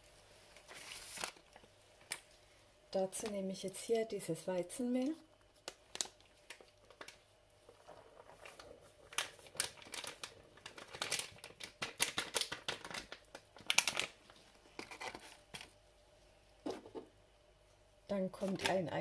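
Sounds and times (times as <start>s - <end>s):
paper bag crinkling: 0.5s - 2.2s, 5.6s - 15.8s.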